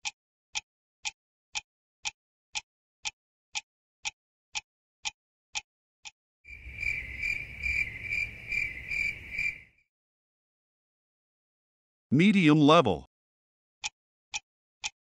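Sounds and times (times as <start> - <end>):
clock ticks: 0.0 - 6.2, 13.8 - 15.0.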